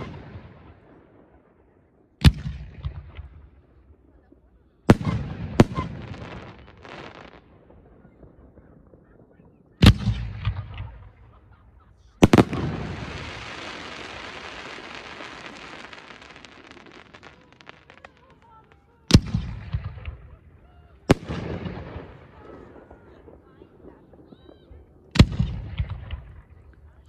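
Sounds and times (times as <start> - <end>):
firework crackle: 4.9 - 11.3, 12.0 - 27.0.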